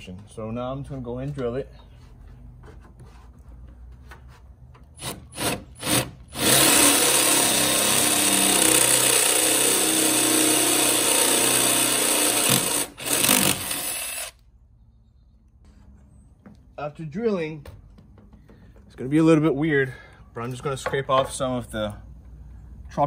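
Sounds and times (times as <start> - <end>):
cordless drill drilling metal: 5.0 - 14.4.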